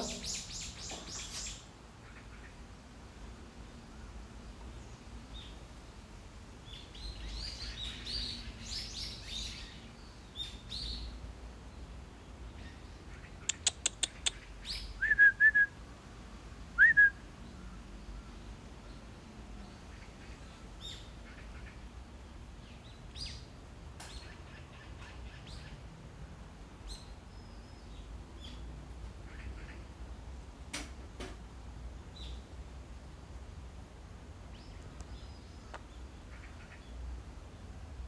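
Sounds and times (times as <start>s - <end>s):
birds calling: 0.0s - 2.6s, 22.6s - 25.8s, 34.5s - 37.0s.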